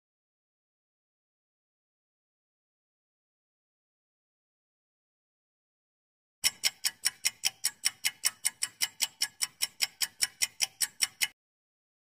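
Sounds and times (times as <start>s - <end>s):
clock ticking: 6.4s - 11.4s.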